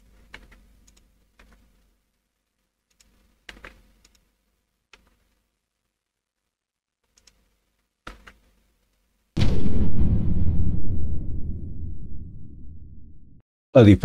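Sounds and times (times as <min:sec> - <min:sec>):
computer keyboard and mouse clicks: 0:00.1 - 0:01.8, 0:02.9 - 0:04.3, 0:04.9 - 0:05.4, 0:07.0 - 0:09.0.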